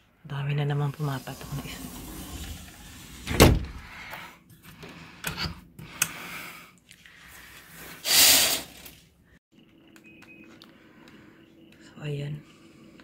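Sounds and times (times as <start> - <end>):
sliding window scraping shut: 0.9 - 3.9.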